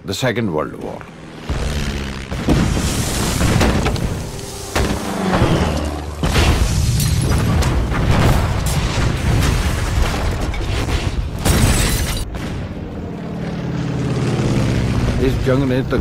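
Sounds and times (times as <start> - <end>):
rumble of explosions: 1.0 - 13.3.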